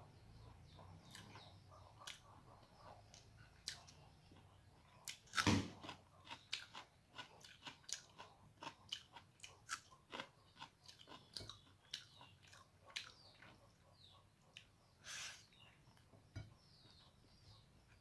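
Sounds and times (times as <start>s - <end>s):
wet chewing: 3.1s - 13.7s.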